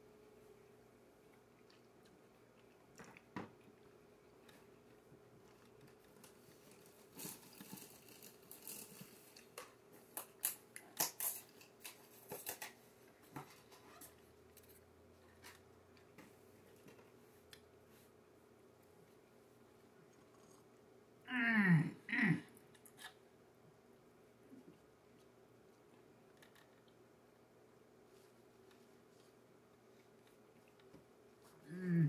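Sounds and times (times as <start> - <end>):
faint steady hum: 0.0 - 32.0
pastry crinkling and clicking: 1.4 - 17.7.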